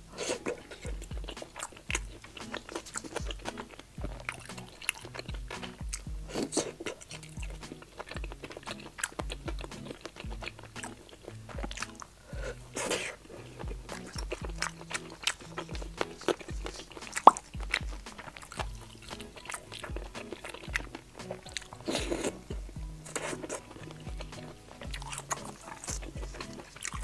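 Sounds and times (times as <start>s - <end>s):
background music with bass line: 0.0s - 27.0s
close chewing and biting: 0.0s - 27.0s
wet mouth clicks: 0.2s - 27.0s.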